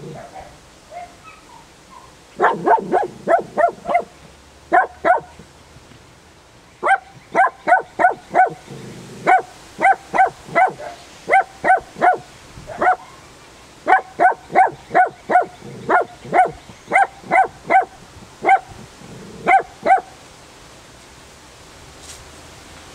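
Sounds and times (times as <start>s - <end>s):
dog barking: 0.1s - 5.4s, 6.8s - 13.2s, 13.9s - 18.8s, 19.4s - 20.2s.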